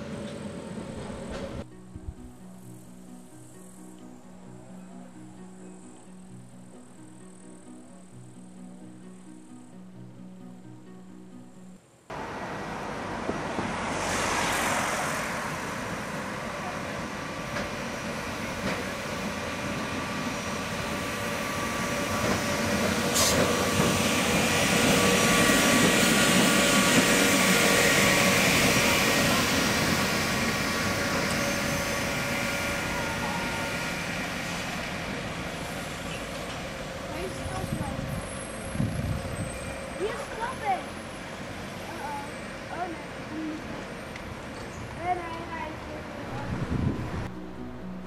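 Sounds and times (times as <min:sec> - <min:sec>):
tram running with whine: 0:00.0 - 0:48.0.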